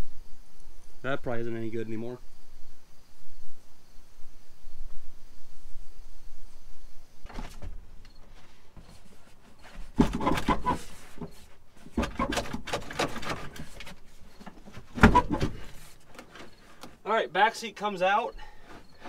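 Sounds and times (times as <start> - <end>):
seat springs creaking and scraping: 7.2 - 17.0, 18.4 - 19.0.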